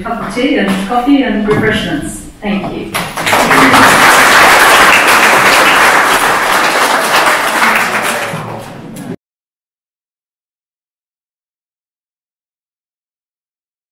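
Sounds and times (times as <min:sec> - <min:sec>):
audience applauding: 0:03.0 - 0:08.8.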